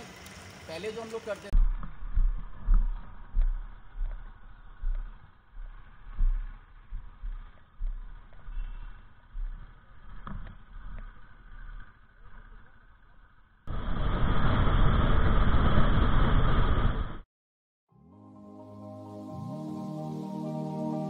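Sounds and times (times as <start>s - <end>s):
low thumps and rumble of handling: 1.6s - 12.4s.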